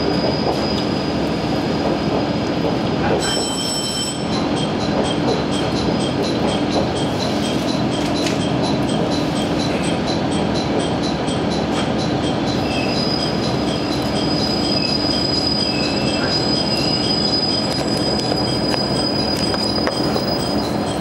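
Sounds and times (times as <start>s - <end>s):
high brake squeal: 0.0s - 1.8s, 3.2s - 4.3s, 12.6s - 21.0s
railcar wheels rumbling on rail: 0.0s - 21.0s
short wavering squeals: 12.6s - 21.0s.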